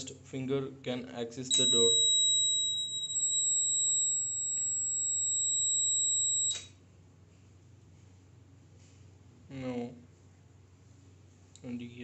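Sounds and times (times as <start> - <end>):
electronic buzzer beep: 1.5 - 6.7.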